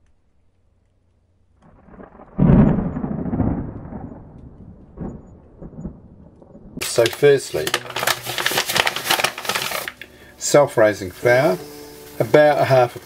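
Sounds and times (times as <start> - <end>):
small crackles: 0.0 - 10.6
explosion boom with rumble: 1.6 - 6.8.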